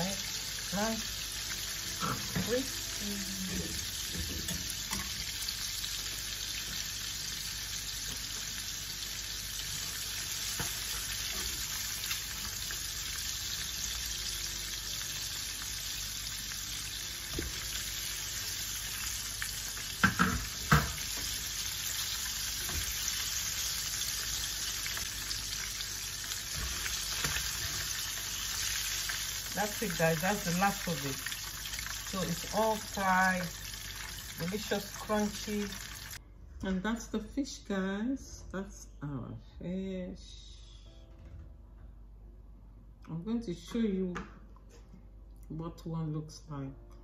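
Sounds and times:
fish deep-frying sizzle: 0.0s - 36.2s.

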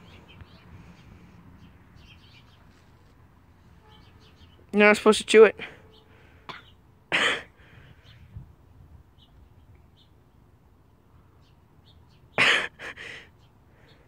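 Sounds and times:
boy coughing and sputtering: 6.5s - 7.5s, 12.4s - 13.0s.

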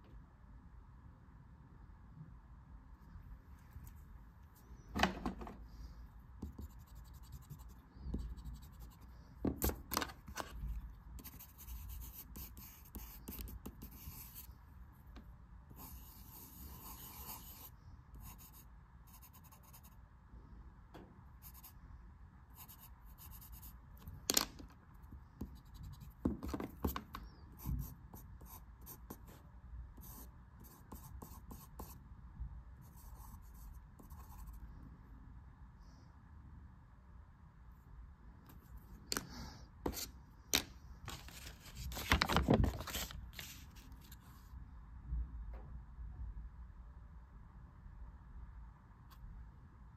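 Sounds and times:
pencil scratching on paper: 6.4s - 9.7s, 11.2s - 14.5s, 15.8s - 20.0s, 30.0s - 32.0s, 32.9s - 34.6s.

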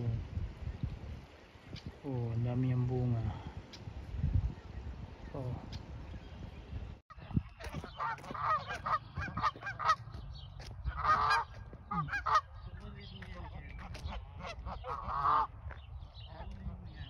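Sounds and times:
goose honking: 7.6s - 10.1s, 10.9s - 12.7s, 13.8s - 15.5s.

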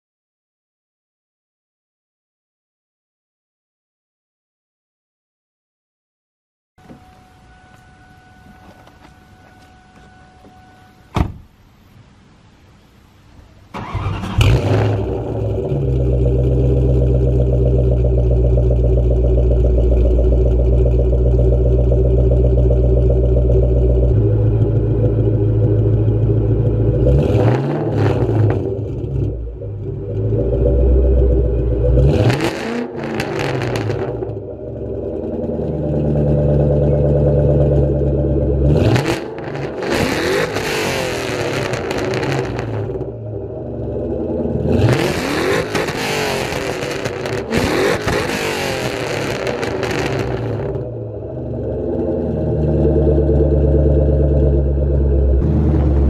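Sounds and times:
car engine idling and revving: 13.8s - 56.0s.

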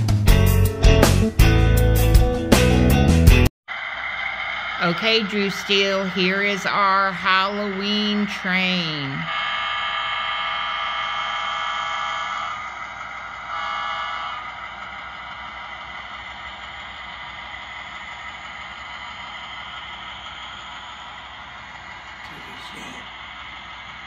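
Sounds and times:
model train horn blasts: 13.5s - 14.6s.

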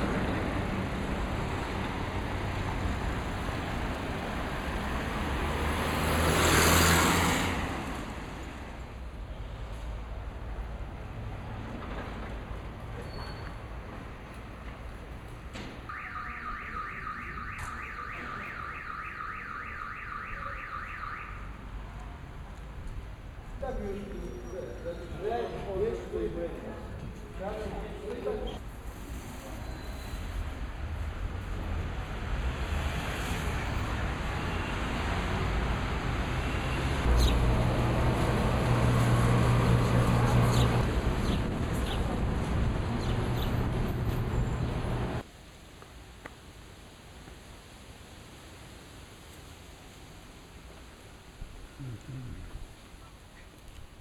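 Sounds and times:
street traffic noise: 0.0s - 54.0s
car alarm siren whooping: 15.9s - 21.6s
vehicle engine hum: 34.6s - 45.2s.

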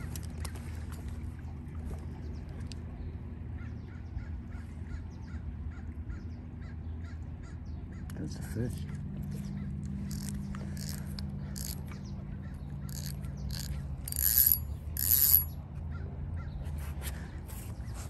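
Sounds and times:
high-pitched reel buzzes: 10.1s - 11.8s, 12.9s - 15.5s
fishing reel ratcheting: 10.1s - 11.9s, 12.8s - 15.5s.

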